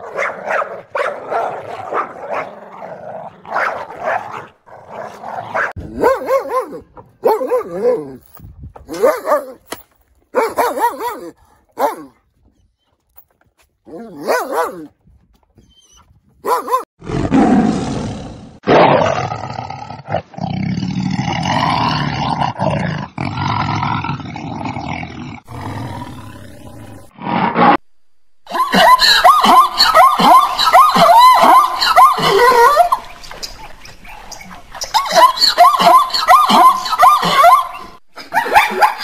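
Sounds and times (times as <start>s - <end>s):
dog whining: 15.6s - 16.1s
lion roaring and growling: 17.0s - 27.8s.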